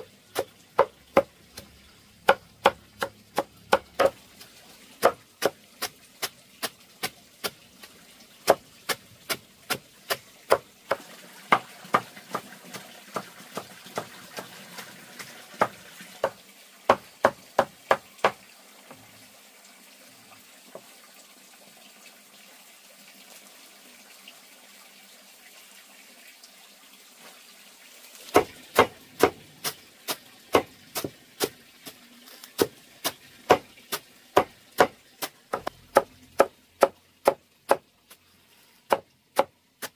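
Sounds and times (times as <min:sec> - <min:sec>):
knife chopping on wooden block: 0:02.3 - 0:04.2, 0:28.4 - 0:31.6, 0:32.6 - 0:37.8, 0:38.9 - 0:39.9.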